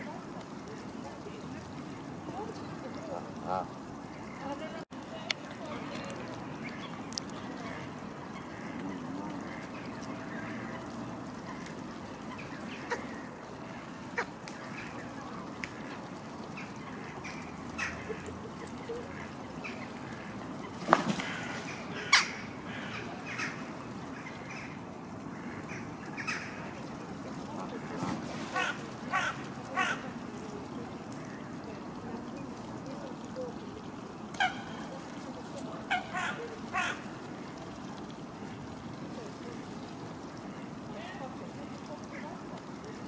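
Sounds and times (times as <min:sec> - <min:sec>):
outdoor background noise: 0:00.0 - 0:43.0
ducks and geese calling: 0:35.9 - 0:37.1.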